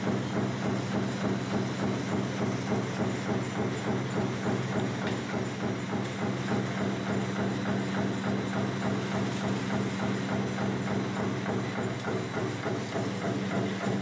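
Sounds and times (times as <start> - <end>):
machinery humming and clattering: 0.0 - 14.0.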